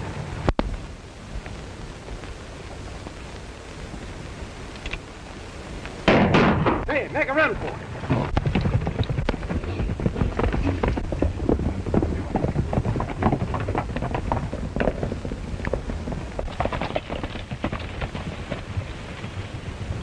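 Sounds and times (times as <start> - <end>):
old film soundtrack hiss: 0.0 - 20.0
horse hoofbeats galloping: 7.2 - 20.0.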